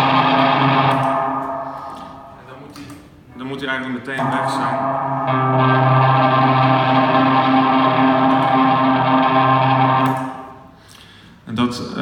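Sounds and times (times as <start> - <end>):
electric guitar synth-like note: 0.0 - 2.6, 4.2 - 10.8.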